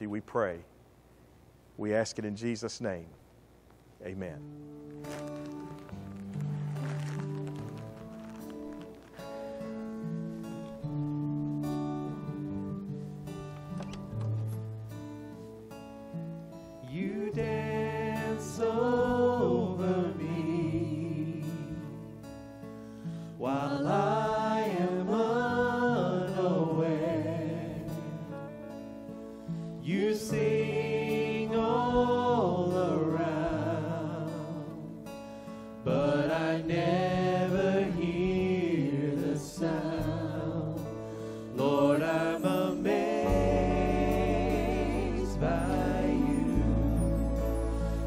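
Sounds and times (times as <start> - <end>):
acoustic guitar: 4.0 - 48.0
bass: 4.0 - 48.0
keyboard: 4.0 - 48.0
people singing together: 16.8 - 22.1, 23.4 - 28.4, 29.8 - 34.9, 35.8 - 48.0.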